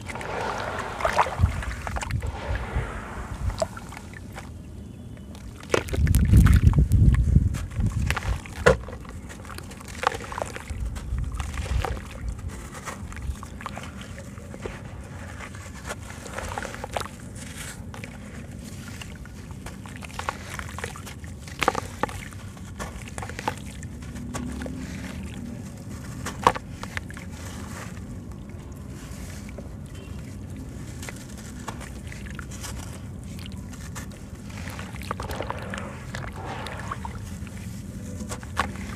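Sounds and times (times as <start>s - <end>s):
water sloshing: 0.0s - 4.8s, 8.2s - 38.9s.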